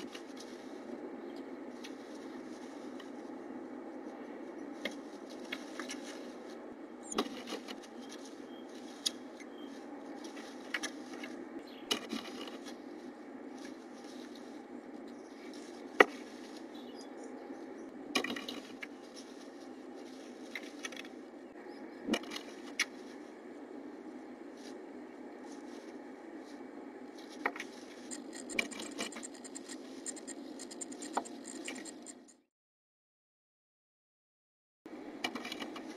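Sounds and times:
rustling of nesting material: 0:00.0 - 0:21.4, 0:22.1 - 0:30.3
steady low hum: 0:00.0 - 0:32.5, 0:34.9 - 0:35.9.

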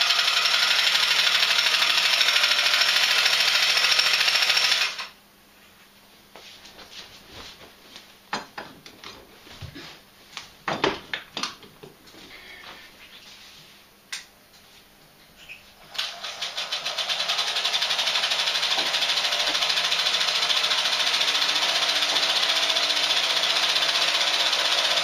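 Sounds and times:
film projector clattering: 0:00.0 - 0:05.1, 0:15.9 - 0:25.0.

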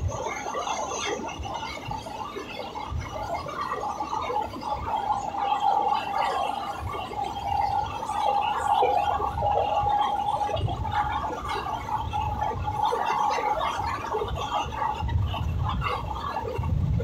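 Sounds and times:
train rumbling at speed: 0:06.8 - 0:17.0.

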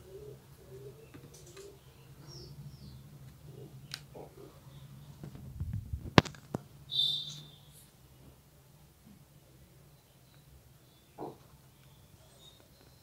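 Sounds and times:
steady low hum: 0:00.0 - 0:11.8
high chirp: 0:06.9 - 0:07.9.

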